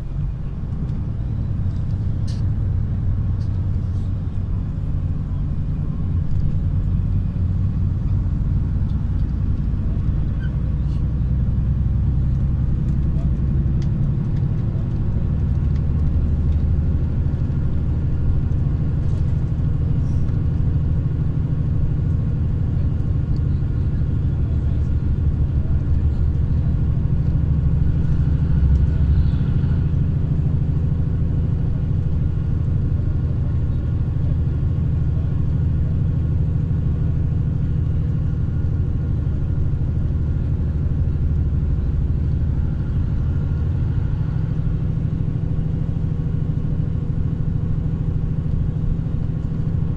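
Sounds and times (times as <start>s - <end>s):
road noise: 0.0s - 49.9s
vehicle engine rumble: 0.0s - 49.9s
truck passing: 22.1s - 47.0s.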